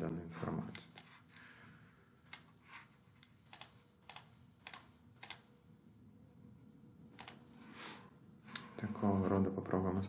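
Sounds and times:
faint room noise: 0.0 - 10.0
computer mouse clicking: 0.8 - 1.5, 2.3 - 2.6, 3.2 - 5.5, 7.2 - 7.4.

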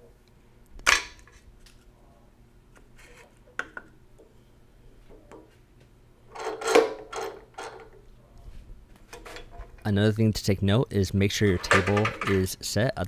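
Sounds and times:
clattering handling noise: 6.3 - 8.1, 8.9 - 9.9, 11.4 - 12.5
wooden blocks set on metal table: 6.3 - 8.1, 11.4 - 12.5.

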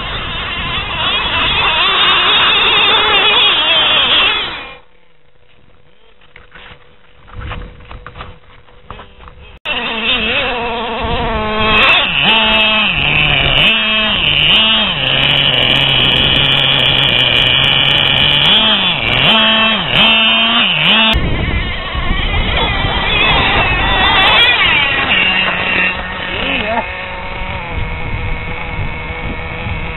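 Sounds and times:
small nitro engine revving: 0.0 - 4.9, 8.9 - 29.9.

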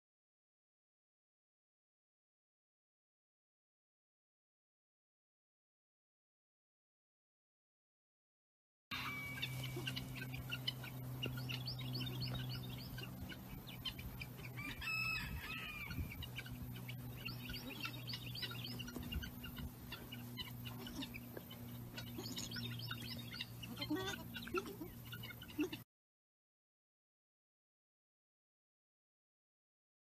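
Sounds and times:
steady low hum: 8.9 - 25.8
chickens clucking: 9.0 - 25.8.

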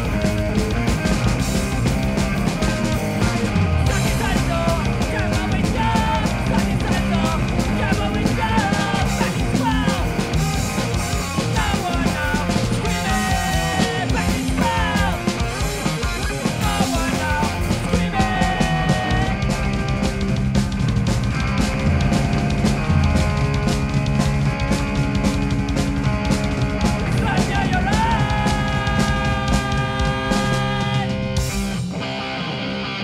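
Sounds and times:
bass guitar: 0.0 - 33.0
drum kit: 0.0 - 33.0
electric guitar: 0.0 - 33.0
singer's vocals: 2.3 - 20.2, 26.9 - 31.4.

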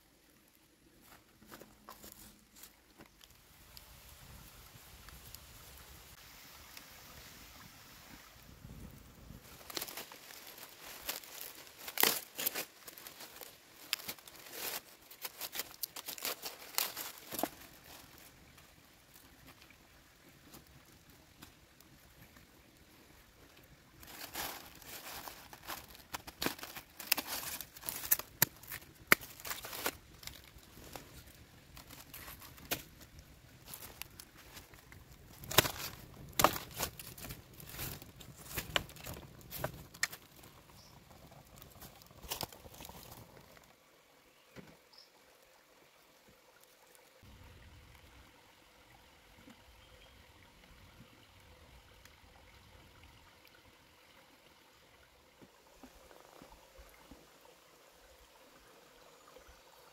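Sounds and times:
crinkly rustling: 9.4 - 18.7, 24.0 - 43.7.

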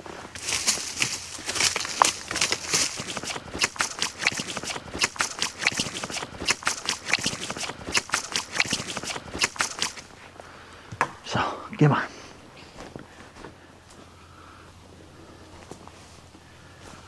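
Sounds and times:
stick scraping through leaf litter: 0.3 - 10.1.

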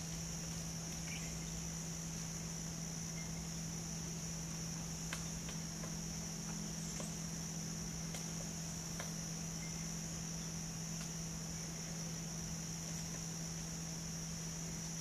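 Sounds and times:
insects droning: 0.0 - 15.0
low steady hum: 0.0 - 15.0
woodpecker tapping on bark: 8.0 - 9.2.

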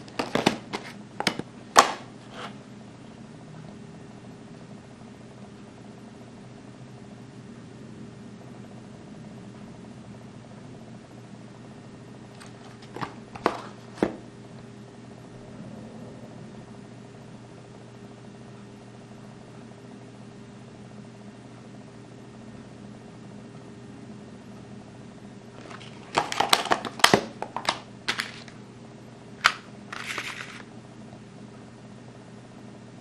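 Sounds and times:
steady low hum: 0.0 - 33.0
plastic blister pack clicking: 25.6 - 28.6.

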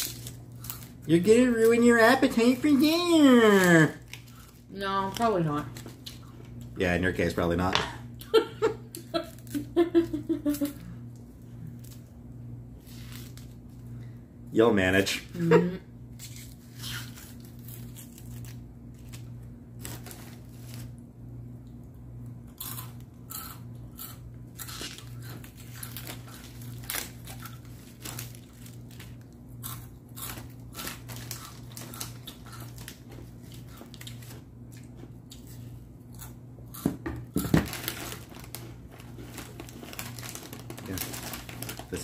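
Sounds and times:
onion skin crackling and tearing: 0.0 - 2.3, 16.2 - 20.9, 24.0 - 34.4
steady low hum: 0.0 - 42.0.

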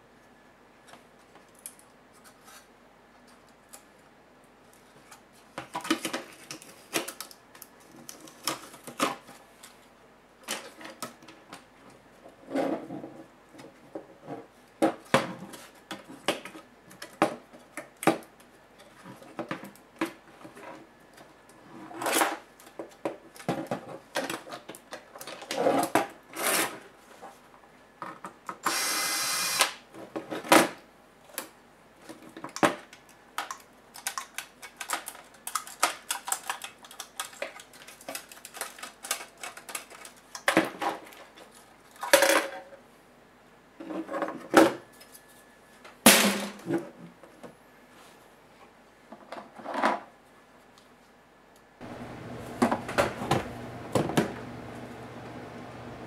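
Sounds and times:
laptop parts clicking and rattling: 32.4 - 42.2.

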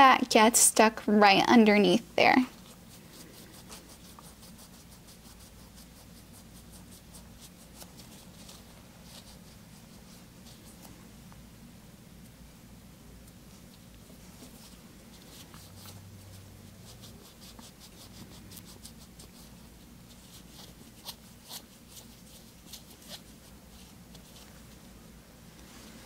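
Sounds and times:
low steady hum: 0.0 - 26.0
scratchy rubbing of nail wipe: 2.5 - 11.0, 14.1 - 24.7.

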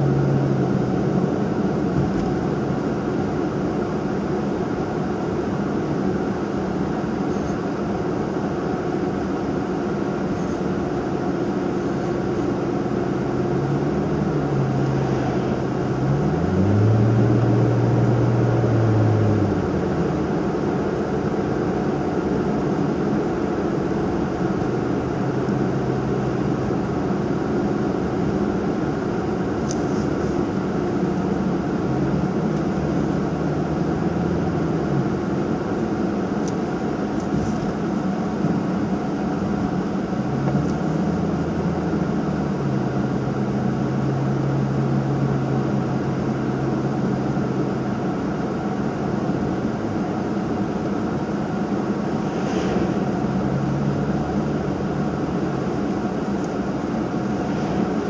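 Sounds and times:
car engine hum: 0.0 - 58.0
tyre and road noise: 51.6 - 58.0.

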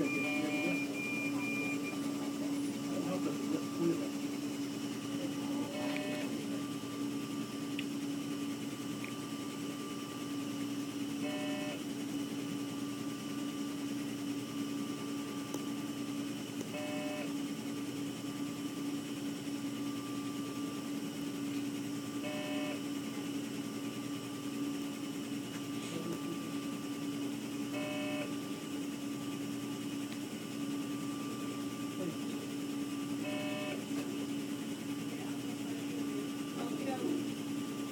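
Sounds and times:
medical monitor beeps: 0.0 - 7.7, 9.2 - 11.8, 14.6 - 17.4, 21.9 - 23.0, 25.9 - 28.7, 32.6 - 34.5
electrical equipment hum: 0.0 - 37.9.

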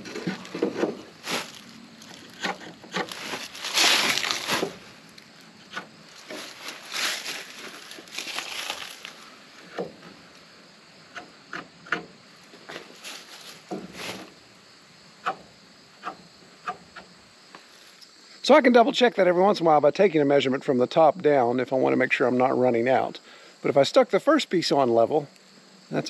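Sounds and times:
wood scraping on rough boards: 0.0 - 4.9, 5.6 - 10.2
footsteps in dry leaves: 1.1 - 2.4, 3.0 - 5.2, 6.1 - 9.4, 12.8 - 14.3.

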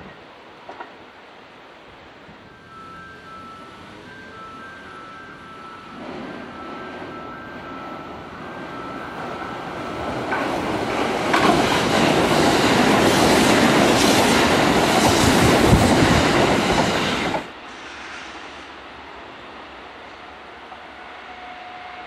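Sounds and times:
electric train passing: 0.0 - 22.0
wheels clattering over rail joints: 9.4 - 17.4.

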